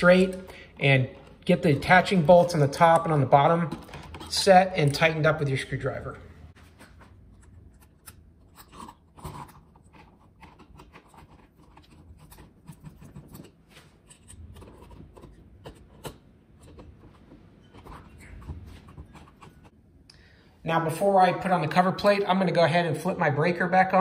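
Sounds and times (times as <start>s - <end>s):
screwdriver scraping and clicking: 1.1s - 5.1s, 6.8s - 19.8s.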